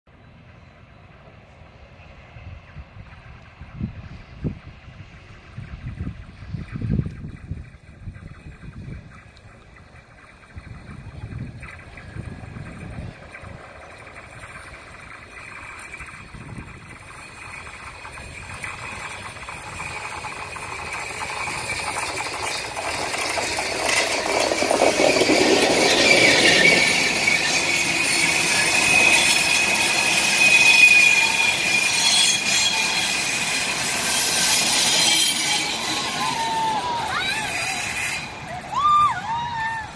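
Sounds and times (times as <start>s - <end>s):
steam locomotive passing: 0.1s - 39.9s
wheels running over rails: 0.2s - 39.9s
high wheel squeal: 3.2s - 39.9s.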